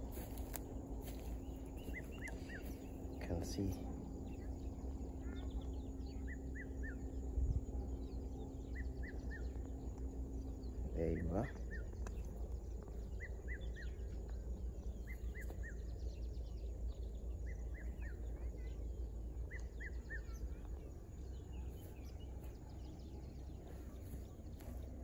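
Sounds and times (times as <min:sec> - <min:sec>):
faint bird chirps: 0:00.0 - 0:25.0
steady low rumble: 0:00.0 - 0:25.0.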